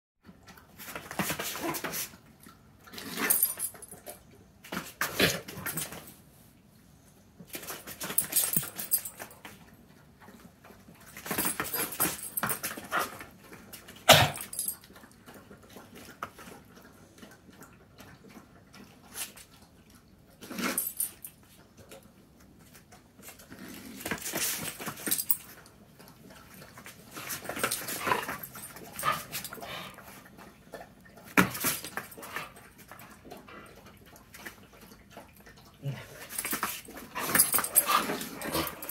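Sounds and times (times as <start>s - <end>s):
dogs scuffling on concrete: 22.7s - 25.7s, 26.8s - 30.3s, 31.2s - 32.6s, 36.2s - 38.9s.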